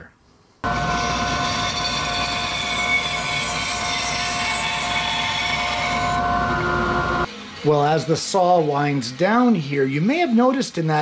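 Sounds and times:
bandsaw cutting wood: 0.6s - 6.9s.

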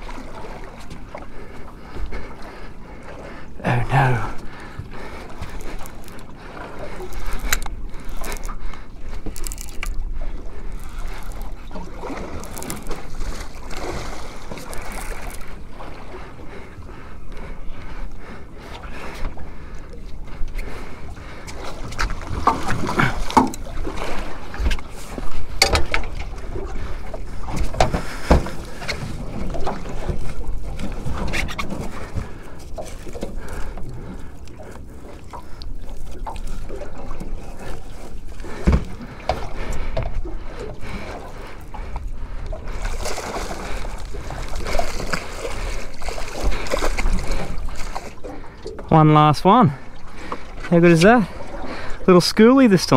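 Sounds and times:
water sloshing against boat: 0.0s - 52.9s
fish splashing: 3.8s - 15.9s, 26.5s - 48.9s.

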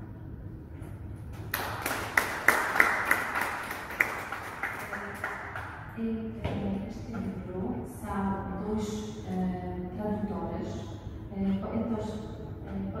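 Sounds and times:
audience applauding: 1.4s - 5.8s.

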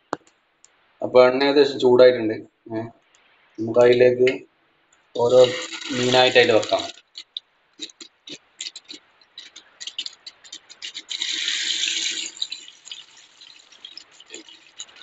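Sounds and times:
loud burst of sizzling: 5.2s - 7.2s, 10.8s - 15.0s
fish frying in hot oil: 5.2s - 15.0s.

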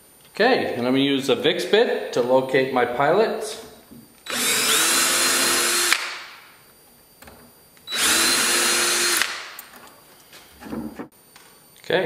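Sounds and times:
cordless drill whining: 4.2s - 6.1s, 7.9s - 9.5s.

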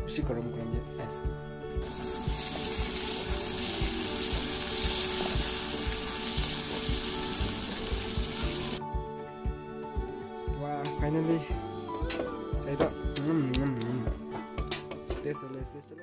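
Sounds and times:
background music with steady beat: 0.0s - 16.0s
vegetables sizzling in a wok: 1.8s - 8.8s.

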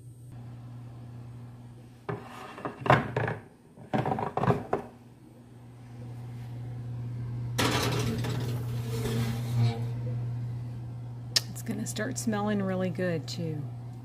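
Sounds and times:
steady low hum: 0.0s - 2.2s, 4.9s - 14.0s
oven wire rack clattering: 7.6s - 9.8s
glass dish scraping on wire rack: 7.6s - 9.9s.

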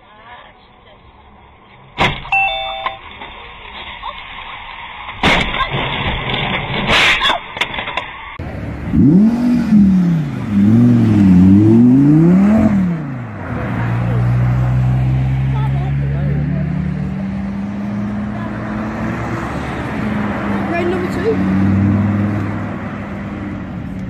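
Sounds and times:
short beeps: 2.3s - 3.0s
car engine revving hard: 8.4s - 23.6s.

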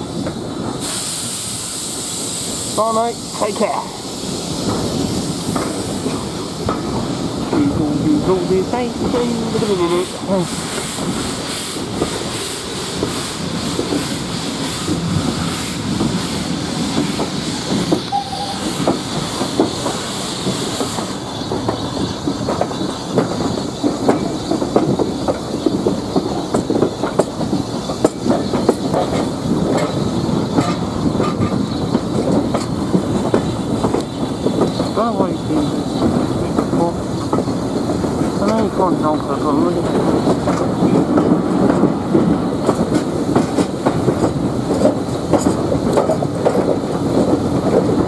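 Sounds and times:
coach wheels clattering on rails: 0.0s - 48.0s
steam hiss: 0.0s - 48.0s
steam locomotive working: 0.0s - 48.0s.

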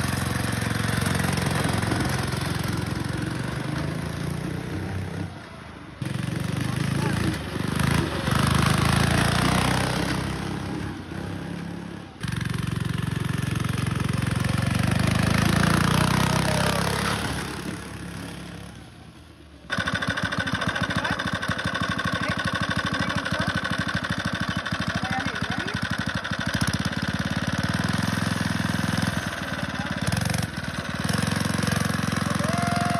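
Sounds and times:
small engine running under load: 0.0s - 32.9s
engine idling: 19.6s - 32.9s.

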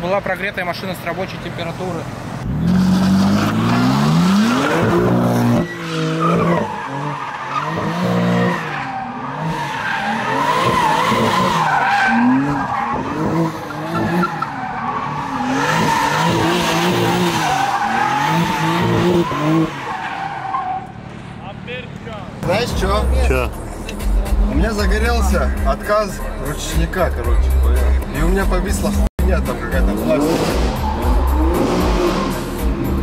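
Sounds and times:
car engine revving: 1.8s - 33.0s
tyre squeal: 4.5s - 20.9s.

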